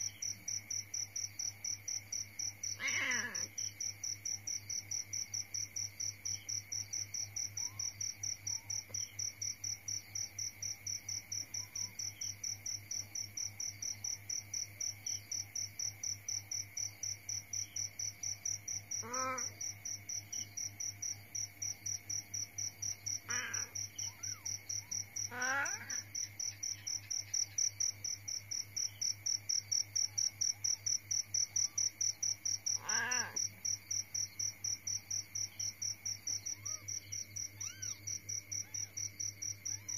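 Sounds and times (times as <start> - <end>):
cricket chirping: 0.0 - 39.9
cat meowing: 2.8 - 3.5, 32.8 - 33.4, 37.6 - 38.0.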